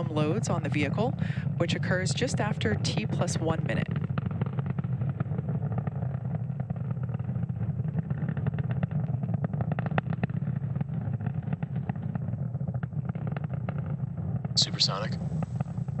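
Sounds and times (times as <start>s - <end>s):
rocket engines rumbling and crackling: 0.0s - 16.0s.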